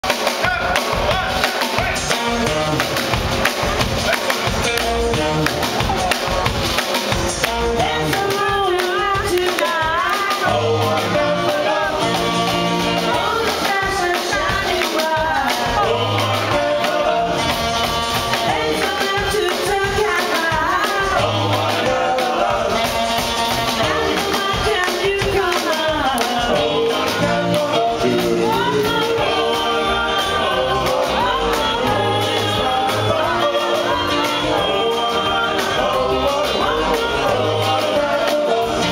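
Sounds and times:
drums: 0:00.0 - 0:38.9
upright bass: 0:00.0 - 0:38.9
man singing: 0:00.4 - 0:03.0, 0:25.5 - 0:38.9
saxophone: 0:00.4 - 0:38.9
woman singing: 0:07.3 - 0:17.4, 0:18.3 - 0:22.8, 0:23.7 - 0:38.9.

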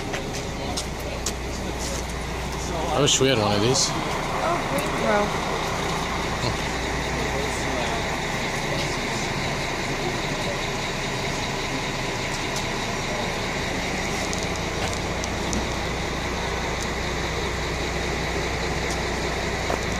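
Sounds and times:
diesel railcar engine running: 0:00.0 - 0:19.9.

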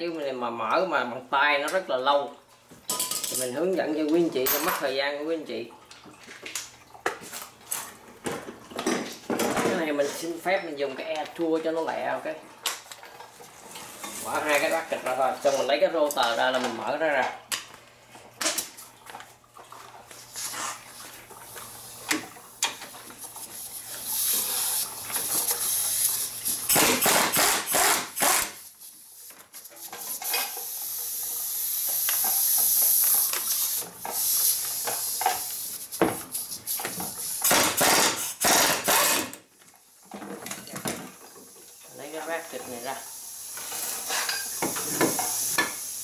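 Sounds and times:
air tool hissing whir: 0:23.4 - 0:28.9, 0:30.0 - 0:39.4, 0:43.1 - 0:46.0
impact wrench rattling bursts: 0:26.4 - 0:28.7, 0:36.3 - 0:39.4.

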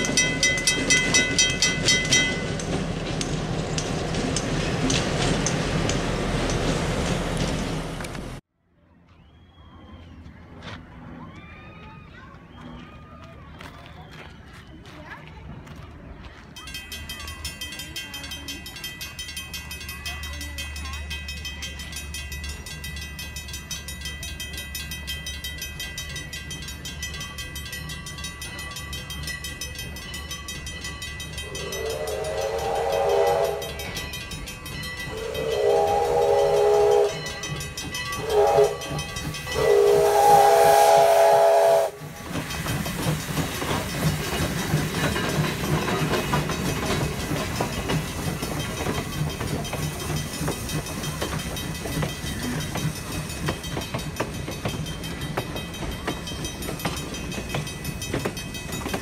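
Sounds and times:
crossing signal bell ringing: 0:00.0 - 0:06.7, 0:16.6 - 0:59.0
train wheels clicking over rail joints: 0:00.0 - 0:08.4, 0:16.6 - 0:59.0
steam locomotive whistle: 0:31.4 - 0:34.0, 0:35.0 - 0:42.2.

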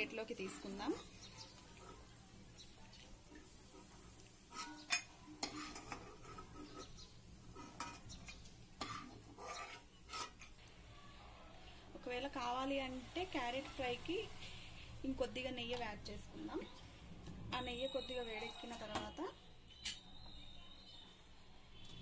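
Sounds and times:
faint sizzle: 0:00.0 - 0:22.0
spoon scraping a pan: 0:03.3 - 0:10.6.

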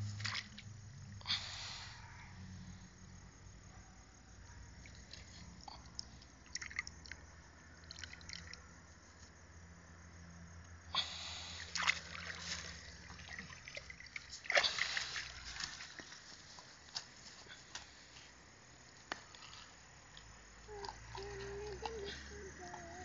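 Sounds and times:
water dripping and splashing: 0:04.9 - 0:07.2, 0:07.8 - 0:08.6, 0:11.7 - 0:17.1.

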